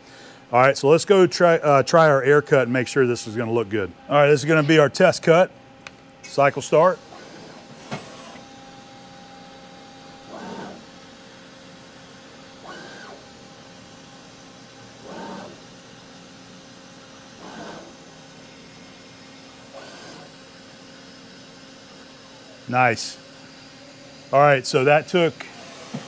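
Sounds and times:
milling machine spindle hum: 1.1 - 26.0
machine axes rushing: 10.3 - 10.8, 15.0 - 15.6.

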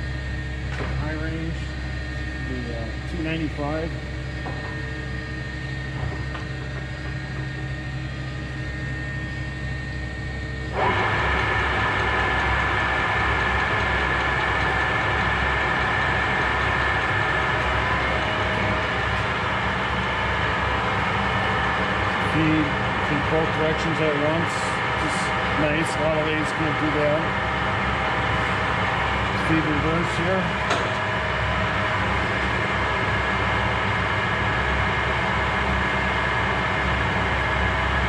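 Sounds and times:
lathe motor humming: 0.0 - 38.0
lathe chuck turning: 10.8 - 26.6.

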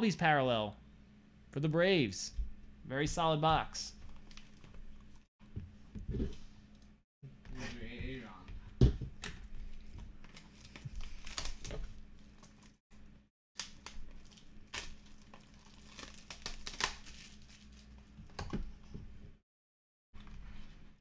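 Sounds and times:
shrink-wrap tearing and crinkling: 10.3 - 12.8, 13.6 - 18.0.

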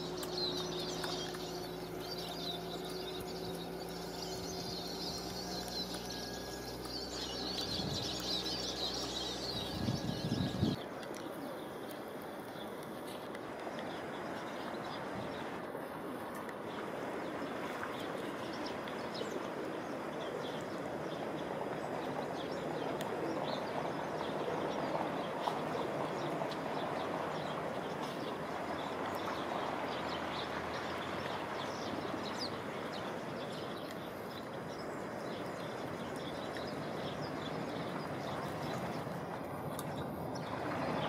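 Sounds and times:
high bird chirps: 0.0 - 10.8
outdoor background noise: 0.0 - 41.0.

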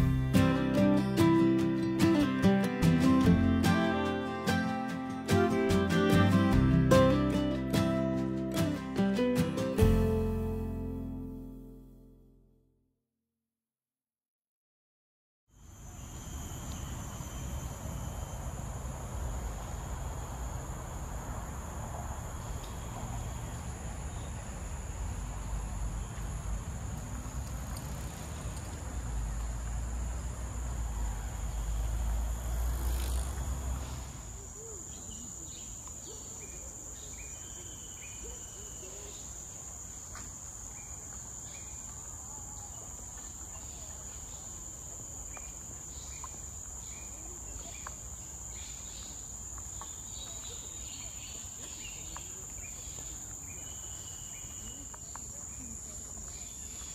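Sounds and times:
insects droning: 15.6 - 56.9.

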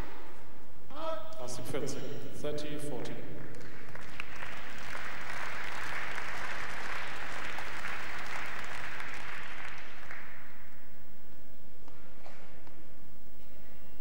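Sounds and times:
crowd applauding: 3.4 - 10.8.

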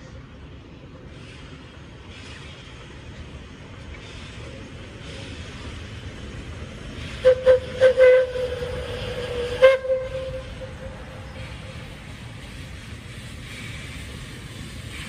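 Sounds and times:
low rumble of train: 0.0 - 15.0
steam whistle toots: 7.1 - 11.8.

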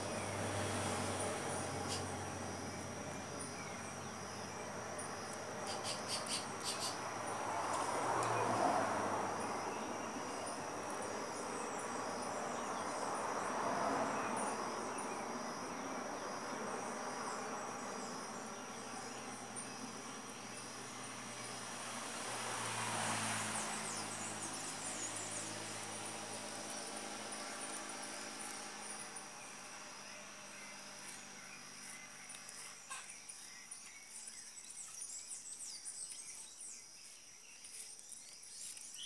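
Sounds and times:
high-pitched insect chorus: 0.0 - 39.0.

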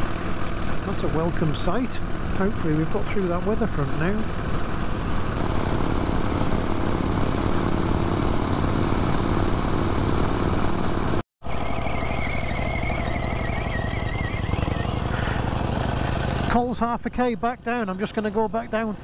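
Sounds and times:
vintage motorcycle engine running: 0.0 - 19.0
faint wavering high whine: 11.4 - 15.2.

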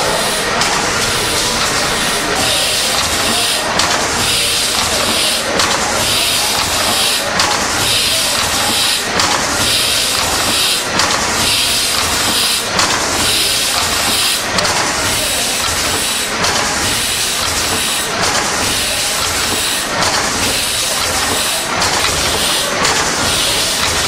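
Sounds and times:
steam engine hissing: 0.0 - 24.0.

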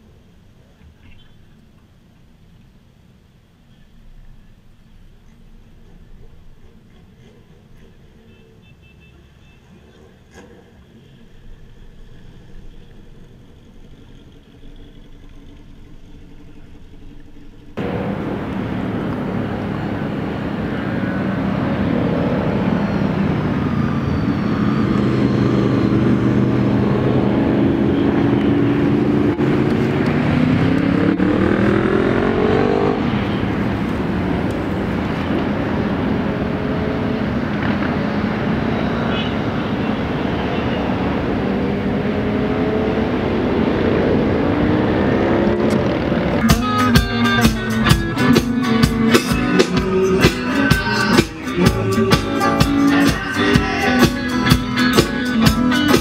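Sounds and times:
motorcycle engines accelerating: 17.0 - 56.0.

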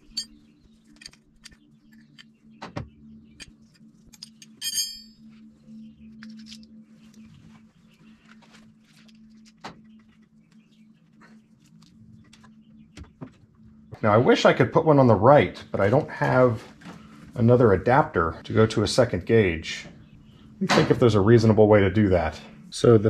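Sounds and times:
ringing metal clink: 0.0 - 0.4, 4.1 - 5.3
steady low hum: 0.0 - 23.0.

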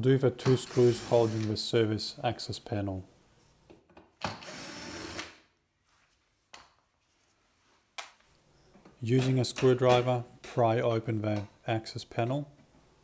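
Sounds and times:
cordless drill running: 0.7 - 1.5, 4.4 - 5.3.

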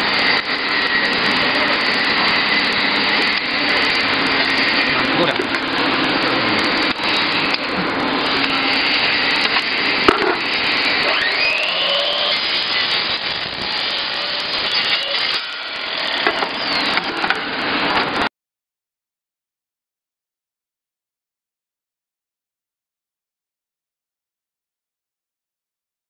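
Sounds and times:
roll forming machine grinding metal: 0.0 - 18.3.

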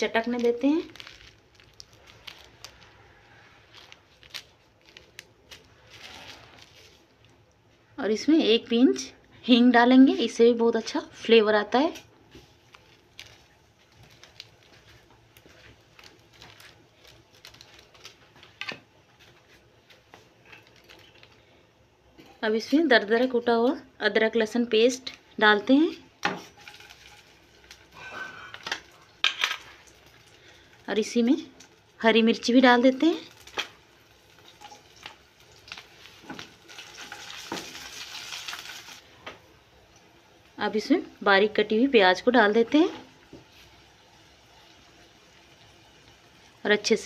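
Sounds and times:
spices crackling in hot oil: 0.0 - 8.3, 10.2 - 21.6, 22.5 - 47.0
food sizzling in hot oil: 26.3 - 47.0.

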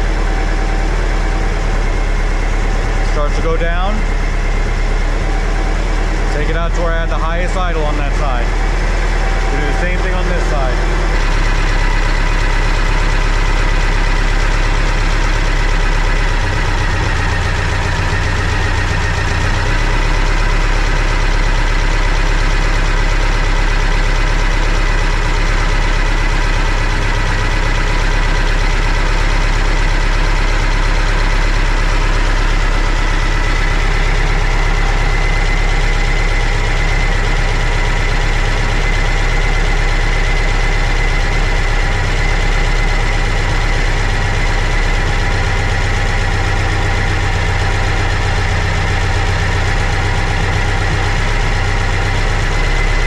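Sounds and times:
car engine idling: 0.0 - 53.0
thin steady whine: 2.9 - 15.1.

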